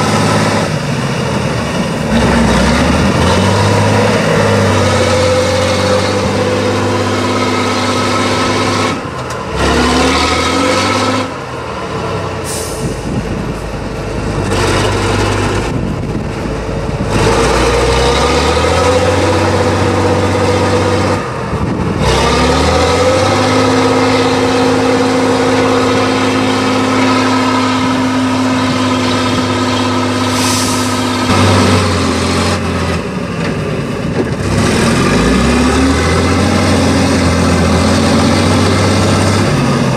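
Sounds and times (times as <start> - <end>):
truck diesel engine working hard: 0.0 - 39.9
short air hisses: 12.4 - 13.0, 30.3 - 31.1.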